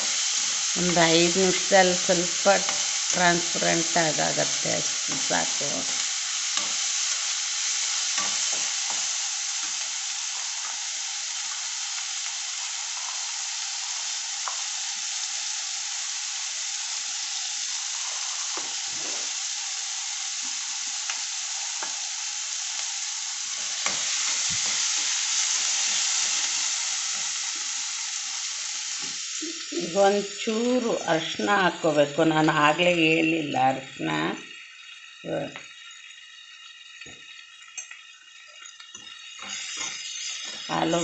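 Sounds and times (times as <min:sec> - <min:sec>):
onions sizzling in hot oil: 0:00.0 - 0:41.0
metal spatula scraping pan: 0:39.4 - 0:40.8.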